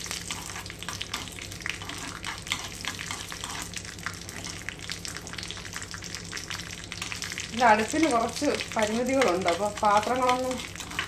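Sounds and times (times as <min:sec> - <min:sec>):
metal spoon stirring in pan: 0:00.0 - 0:04.6, 0:08.0 - 0:11.0
seeds sizzling in hot oil: 0:00.0 - 0:11.0.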